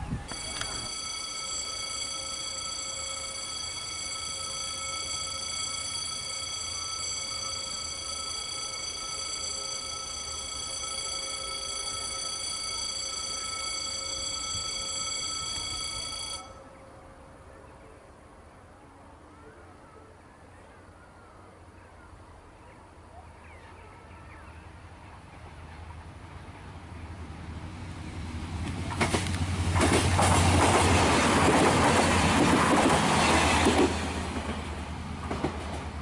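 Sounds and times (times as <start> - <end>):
level crossing bell ringing: 0.3 - 16.6.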